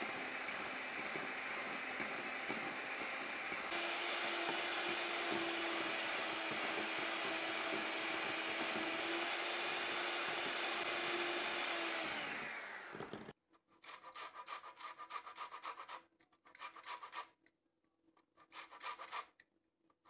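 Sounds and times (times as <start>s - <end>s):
electric hand mixer whirring: 0.0s - 13.4s.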